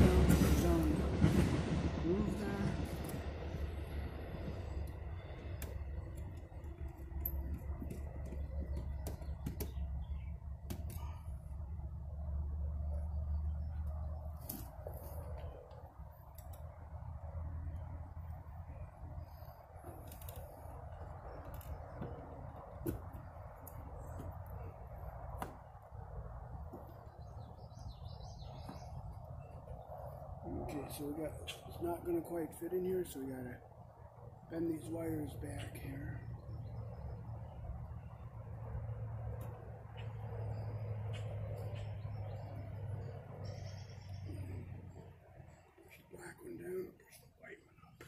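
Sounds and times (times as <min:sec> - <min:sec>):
steady low rumble: 0:00.0 - 0:48.0
faint bird chirps: 0:39.9 - 0:48.0.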